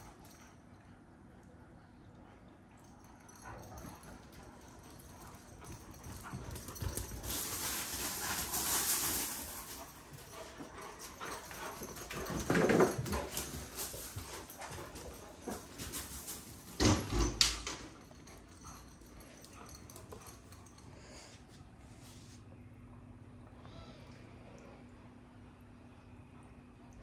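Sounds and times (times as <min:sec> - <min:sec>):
rustling noise: 0:06.8 - 0:10.6.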